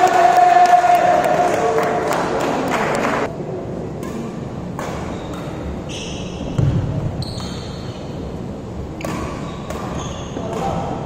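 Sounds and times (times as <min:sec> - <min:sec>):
racket hitting shuttlecock: 0:04.0 - 0:05.7, 0:09.0 - 0:11.0
shoes squeaking on floor: 0:05.0 - 0:08.2, 0:09.0 - 0:10.8.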